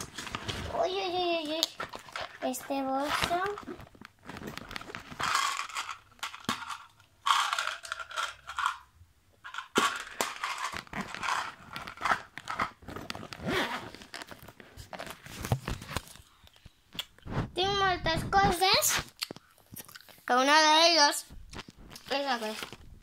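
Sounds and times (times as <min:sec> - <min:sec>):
clicks and scrapes: 0:09.5 - 0:17.5.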